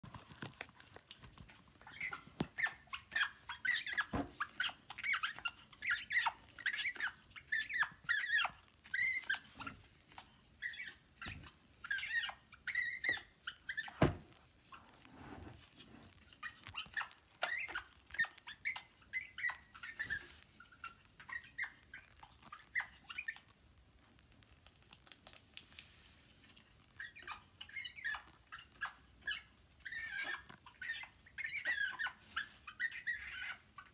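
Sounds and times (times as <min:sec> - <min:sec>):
parrot chirping and clicking: 0:00.1 - 0:15.1, 0:16.1 - 0:33.9.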